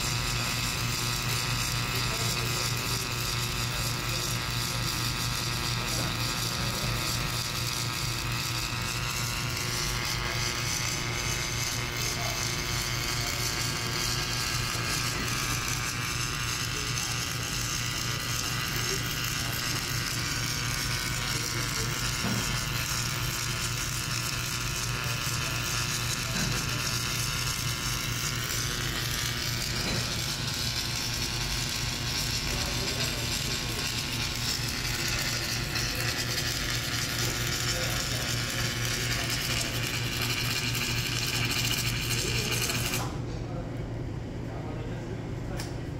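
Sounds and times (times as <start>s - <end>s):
carriage and wire feed whir: 0.0s - 43.2s
welding machine electrical hum: 0.0s - 45.9s.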